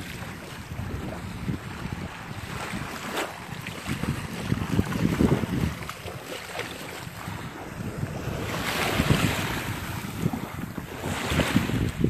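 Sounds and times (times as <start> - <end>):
small waves lapping shoreline: 0.0 - 12.0
wind buffeting microphone: 0.0 - 12.0.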